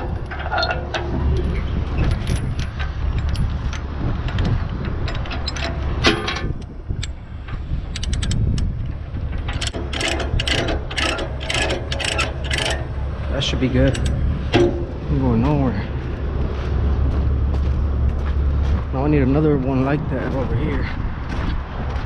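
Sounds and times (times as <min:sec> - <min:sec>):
chain rattle: 0:00.0 - 0:06.6, 0:09.2 - 0:13.0
steady low rumble: 0:00.0 - 0:22.0
ratchet clicks: 0:02.0 - 0:13.0.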